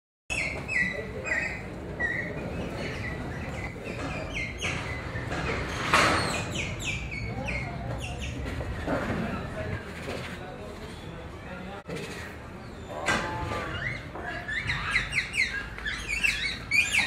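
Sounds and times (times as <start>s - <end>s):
small birds chirping: 0.3s - 8.8s, 11.0s - 17.0s.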